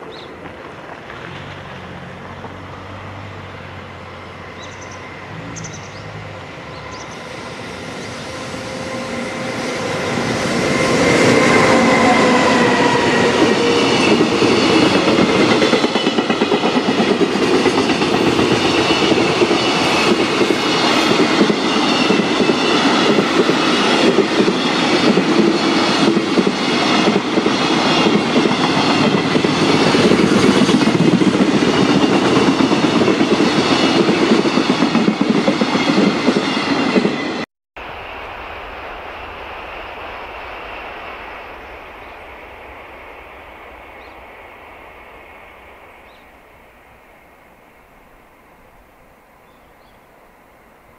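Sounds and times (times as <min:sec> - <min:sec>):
locomotive passing: 0:00.0 - 0:48.3.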